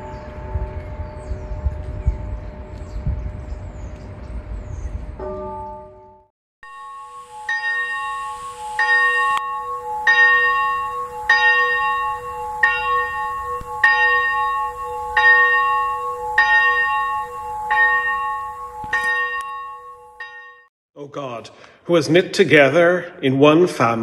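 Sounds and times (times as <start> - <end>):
church bell tolling: 0.0 - 2.6, 5.2 - 20.7.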